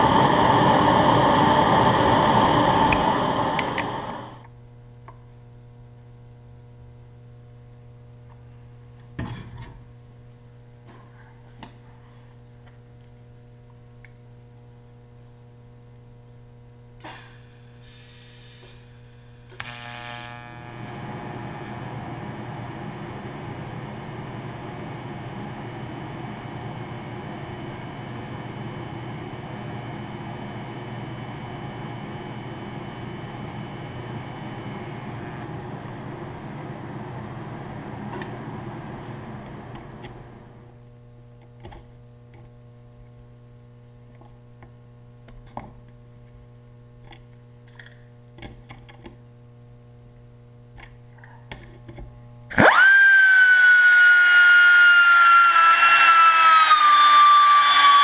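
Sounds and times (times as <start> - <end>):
welding arc buzzing hiss: 0.0 - 4.5, 16.9 - 30.2
electrical hum: 0.0 - 58.0.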